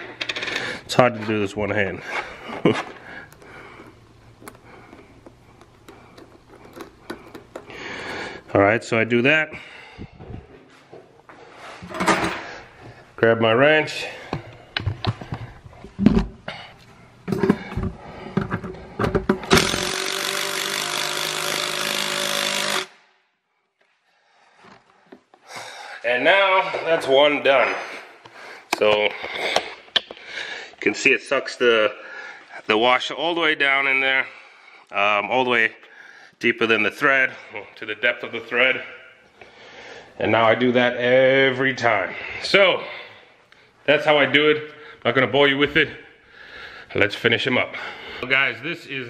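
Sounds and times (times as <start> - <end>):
low steady hum: 0.0 - 22.8
impact driver running: 19.3 - 23.0.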